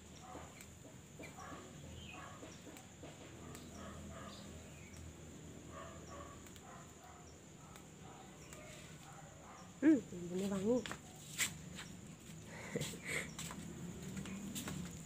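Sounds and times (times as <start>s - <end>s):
bird chirps: 0.0s - 5.1s.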